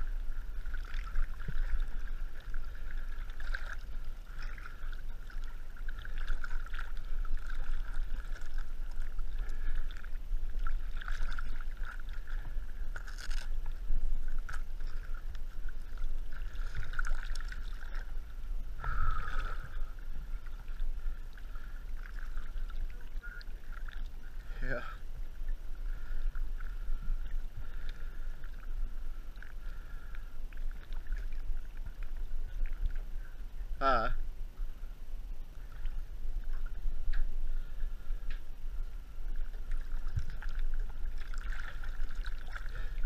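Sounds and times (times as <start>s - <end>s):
muffled water splashing: 0.0s - 43.0s.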